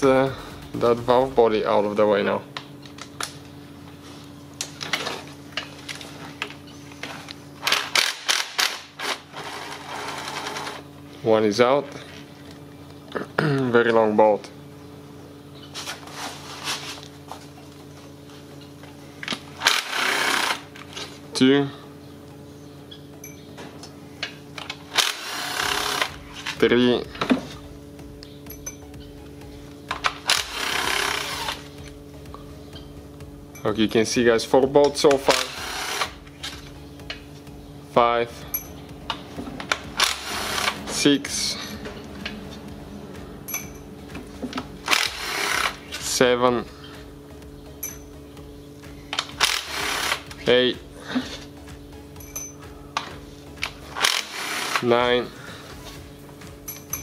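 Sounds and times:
steady low hum: 0.0s - 57.0s
impact driver bursts: 19.6s - 20.7s, 24.9s - 26.2s, 30.1s - 31.7s, 40.0s - 40.8s, 44.9s - 45.8s, 49.3s - 50.3s, 54.0s - 54.8s
cordless power tool spinning bolt: 19.6s - 20.8s, 24.9s - 26.2s, 30.1s - 31.7s, 35.2s - 36.2s, 40.0s - 40.8s, 44.8s - 45.9s, 49.2s - 50.3s, 54.0s - 54.9s
hand tools clinking: 28.5s - 28.9s, 43.5s - 43.9s, 47.8s - 48.2s, 52.2s - 53.1s, 56.6s - 57.0s.

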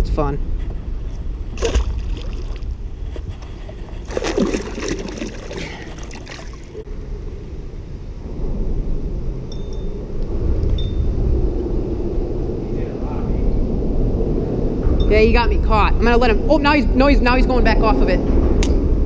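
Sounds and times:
steady low rumble: 0.0s - 19.0s
water lapping against boat: 1.0s - 6.9s
fish splashing into water: 1.6s - 2.8s, 4.0s - 6.8s.

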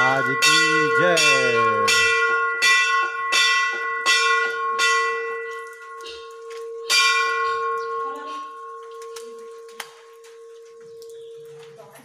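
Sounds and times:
temple bells struck: 0.0s - 8.8s.

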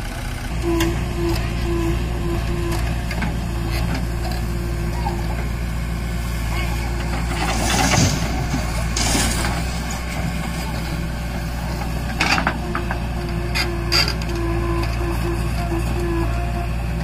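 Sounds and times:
diesel engine running: 0.0s - 17.0s
thin whine: 0.5s - 17.0s
bucket scraping and clanking: 6.9s - 14.5s.

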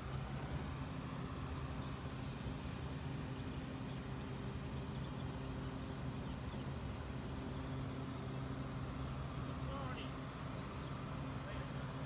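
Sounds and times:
faint outdoor background noise: 0.0s - 12.0s
low mechanical hum: 0.0s - 12.0s.

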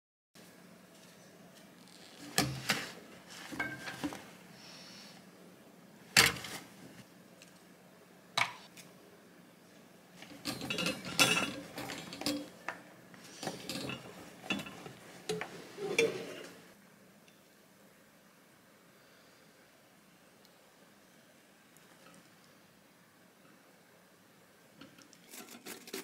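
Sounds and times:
tin scraping: 13.2s - 16.6s, 25.1s - 26.0s.

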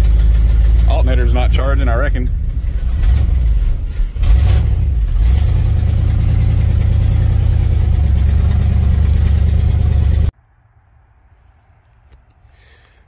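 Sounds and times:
pickup truck engine idling: 0.0s - 10.3s.

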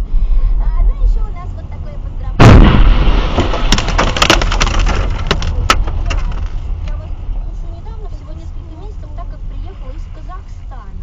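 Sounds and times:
explosion blast: 2.4s - 4.8s
sharp cracks and clicks: 3.4s - 7.0s.

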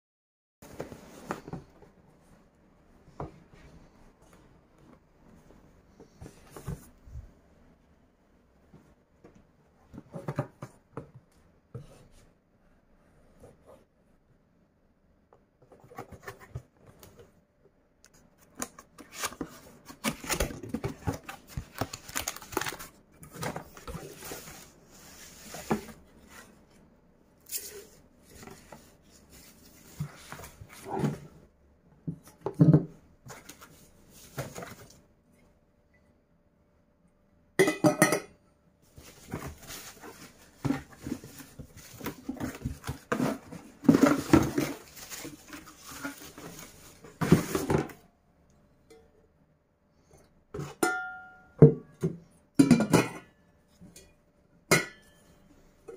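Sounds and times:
wrapping rustling: 21.1s - 23.0s.

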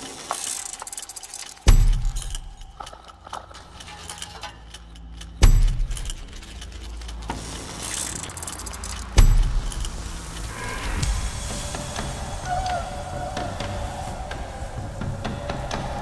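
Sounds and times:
metallic jangling: 0.0s - 10.5s
fine mechanical clicking: 0.0s - 12.8s.

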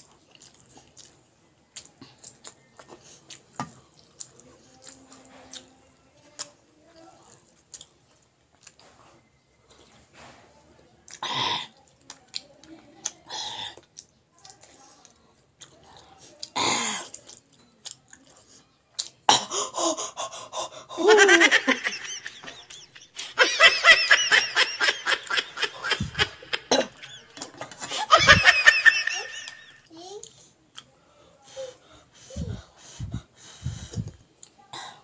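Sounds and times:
mouth and breath sounds: 19.3s - 23.4s, 31.2s - 35.0s
woman laughing hard: 20.9s - 29.8s.

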